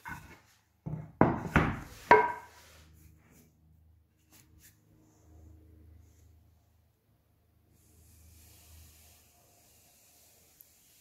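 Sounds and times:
wooden boards knocking on workbench: 0.0 - 2.5.

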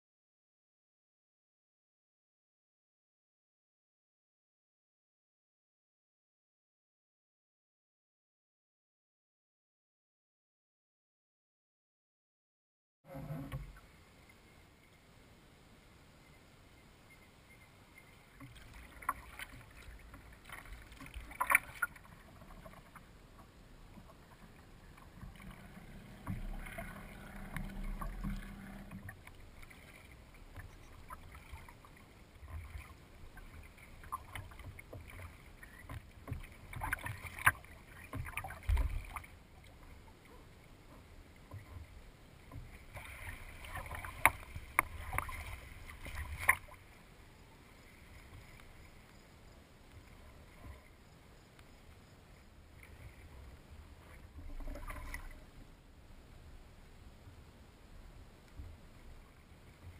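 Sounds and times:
water lapping against hull: 13.1 - 14.9, 17.1 - 59.9
paddle strokes splashing water: 17.1 - 55.7.

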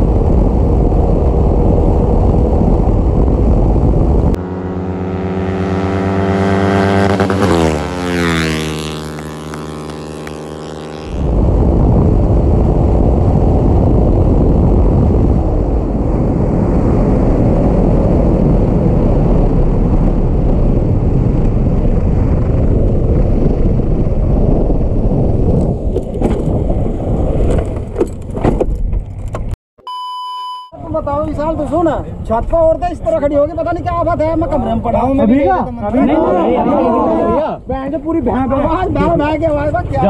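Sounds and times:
wind buffeting on microphone: 0.0 - 29.6
motorcycle engine running: 0.7 - 12.9.

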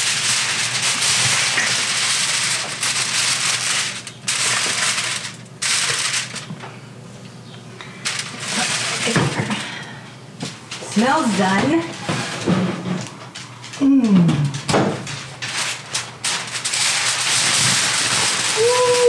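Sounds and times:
aluminum foil crinkling: 0.0 - 6.8, 7.9 - 9.9, 13.0 - 19.0.

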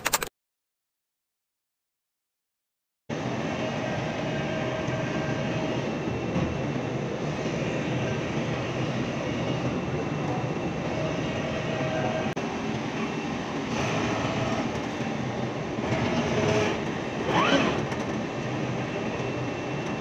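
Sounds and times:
knife cutting machine running: 15.7 - 18.2.

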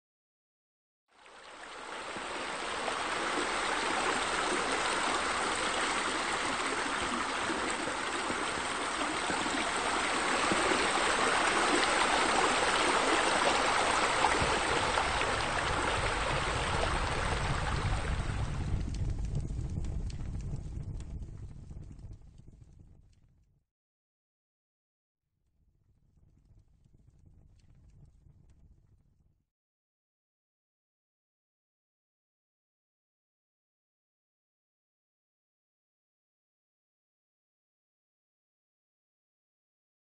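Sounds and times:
water rushing and splashing: 1.2 - 19.0.

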